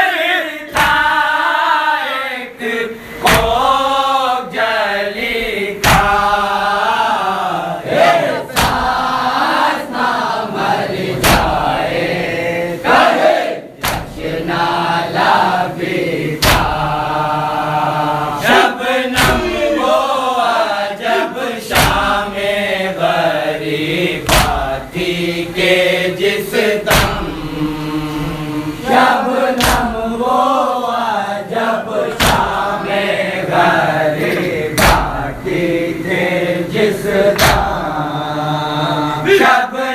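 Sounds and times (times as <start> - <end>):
chest-beating slaps: 0.7 - 1.2, 3.2 - 3.8, 5.8 - 6.3, 8.5 - 9.2, 11.2 - 11.8, 13.8 - 14.3, 16.4 - 17.0, 18.4 - 19.8, 21.7 - 22.2, 24.2 - 24.8, 26.8 - 27.4, 29.6 - 30.0, 32.1 - 32.7, 34.2 - 35.3, 37.3 - 37.8
man chanting a lament: 16.5 - 39.9.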